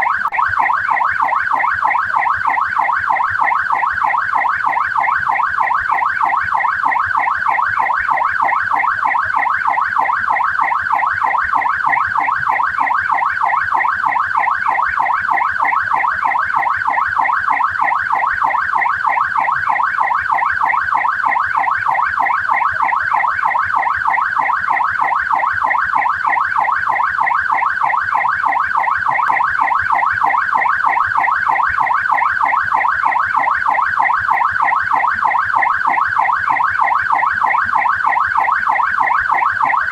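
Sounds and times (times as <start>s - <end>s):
police siren wailing: 0.0s - 39.9s.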